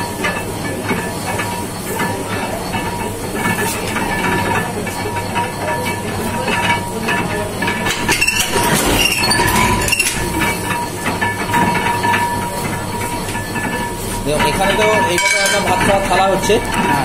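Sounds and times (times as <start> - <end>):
machine clicking and knocking: 6.7 - 12.8.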